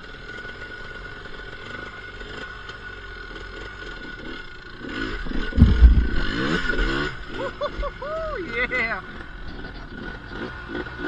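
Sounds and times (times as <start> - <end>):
atv engine revving: 0.0 - 11.0
loud low rumble: 5.2 - 7.5.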